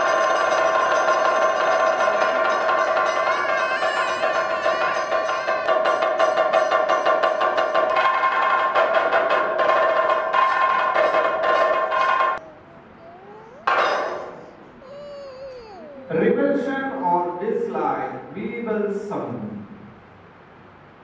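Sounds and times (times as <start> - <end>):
percussion-led music: 0.0 - 12.4.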